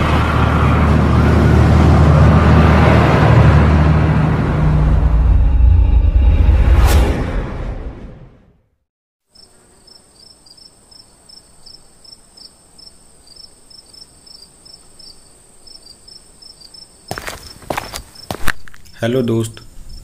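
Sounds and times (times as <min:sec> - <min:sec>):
music sting: 0:04.3 - 0:08.0
crickets chirping: 0:09.3 - 0:20.0.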